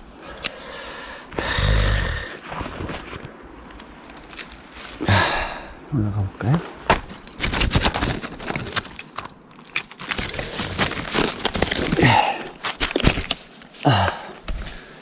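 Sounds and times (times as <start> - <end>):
leaves rustling: 2.0 - 5.4, 6.5 - 15.0
twigs crackling: 3.7 - 5.0, 6.8 - 15.0
footsteps on twigs and leaves: 10.2 - 15.0
person grunting: 12.0 - 12.6, 13.8 - 14.4.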